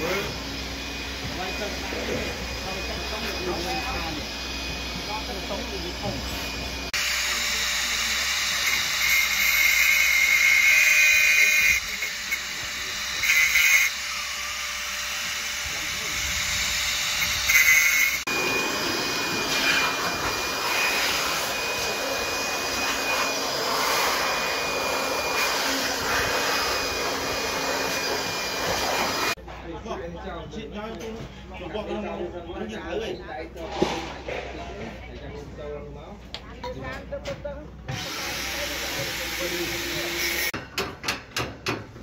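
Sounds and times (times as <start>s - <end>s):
angle grinder whining: 0.0s - 29.4s, 37.9s - 40.6s
grinder high-pitched scream: 6.7s - 29.4s
construction site noise hiss: 14.5s - 29.4s.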